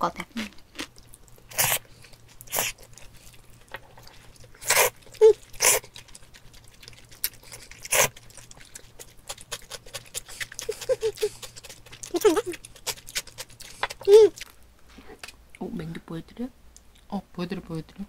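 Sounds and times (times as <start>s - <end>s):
chewing with mouth clicks: 0.4s - 14.6s
noodles slurped: 1.1s - 14.5s.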